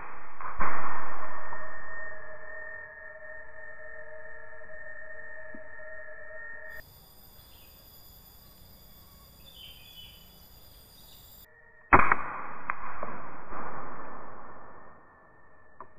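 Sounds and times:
air rifle firing: 11.9s - 14.5s.

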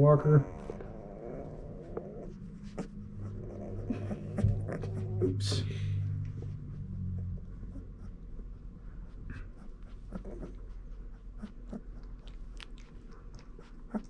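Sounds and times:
puppies making wet clicks: 9.3s - 14.0s.

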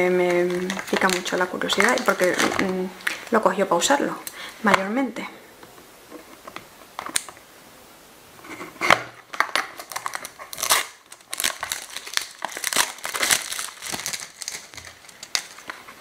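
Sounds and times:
packaging crinkling and tearing: 0.0s - 3.5s, 9.0s - 16.0s.

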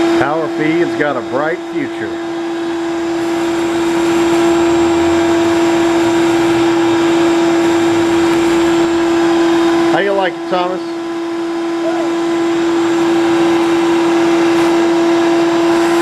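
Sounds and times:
shop vacuum running: 0.0s - 16.0s
vacuum sucking up plastic chips: 2.6s - 10.8s, 12.1s - 16.0s.

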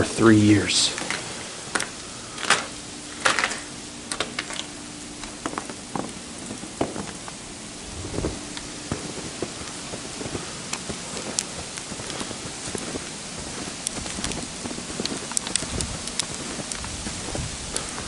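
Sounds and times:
loud crackles: 0.0s - 18.0s
steady hiss: 0.0s - 18.0s
sleet ticking on snow: 0.9s - 18.0s.

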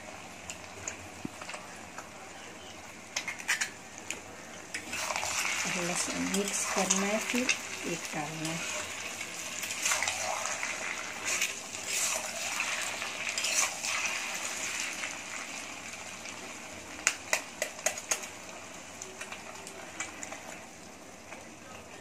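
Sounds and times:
potatoes and egg sizzling in oil: 0.0s - 22.0s
metal spatula scraping pan: 9.8s - 14.3s.

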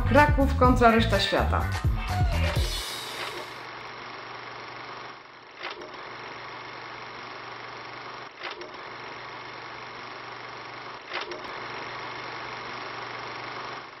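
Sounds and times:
film projector whirring: 2.2s - 14.0s
projector clatter: 2.6s - 3.7s.

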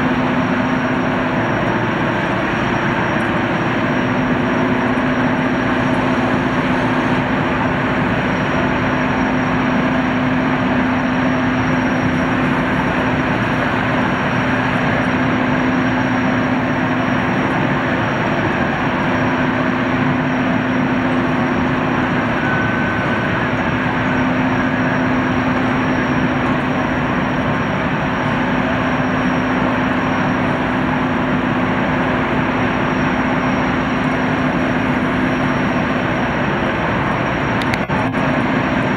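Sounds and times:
gas turbine roar: 0.0s - 38.9s
steady low hum: 0.0s - 38.9s
thin high whine: 0.0s - 38.9s.

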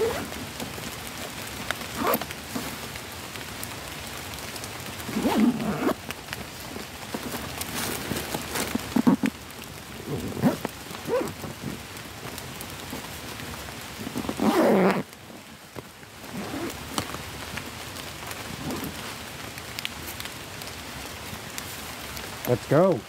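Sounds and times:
zip pulled closed: 0.0s - 0.3s, 2.0s - 2.3s, 5.1s - 6.0s, 7.9s - 9.3s, 10.1s - 11.8s, 14.2s - 15.1s, 16.3s - 16.8s, 18.6s - 18.9s
rain falling in woodland: 0.0s - 23.0s.

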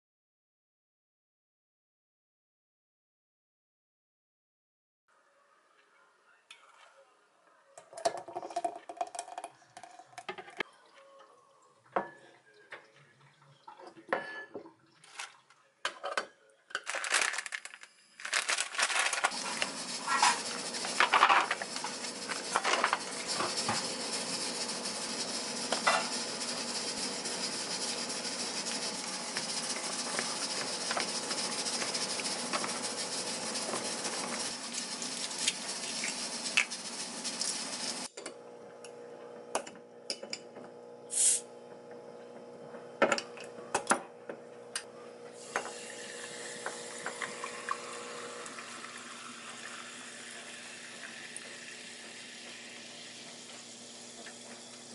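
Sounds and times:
containers clicking and knocking: 8.0s - 10.6s, 15.1s - 23.8s
plastic bag crinkling: 16.8s - 20.3s.

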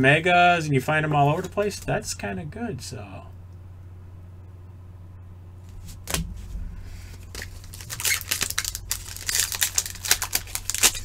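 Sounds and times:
steady low hum: 0.0s - 11.0s
card wrapper crinkling: 7.0s - 11.0s.

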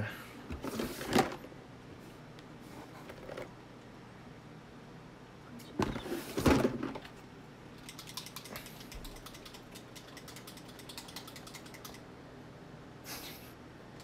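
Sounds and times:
bottle rattling as it is shaken: 7.8s - 12.0s.

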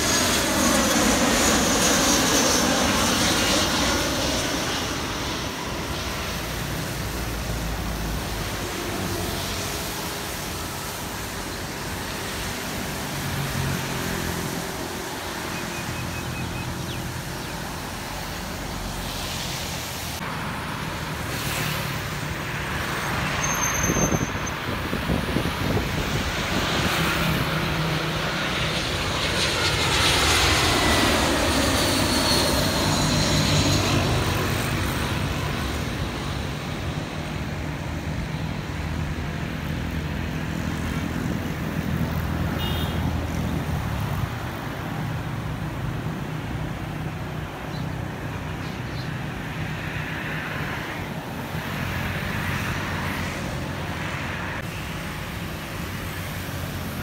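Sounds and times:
falling jet engine whine: 0.0s - 42.4s
jet passing low overhead: 0.0s - 57.0s.

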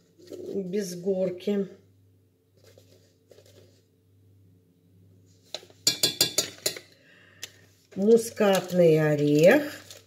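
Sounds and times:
soft rustling of spice packet: 2.5s - 4.0s, 7.4s - 10.0s
metal spoon clinking on pot: 5.8s - 6.9s.

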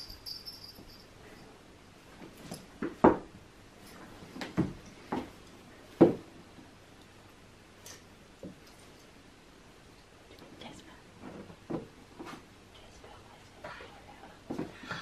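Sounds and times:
sharp knocks and bumps: 6.0s - 6.3s.

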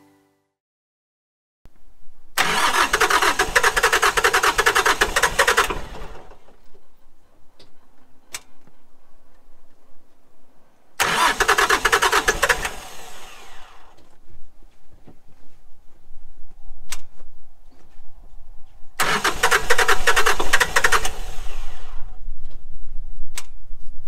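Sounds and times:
diesel engine cranking: 2.4s - 6.7s, 11.0s - 14.1s, 19.0s - 22.2s.

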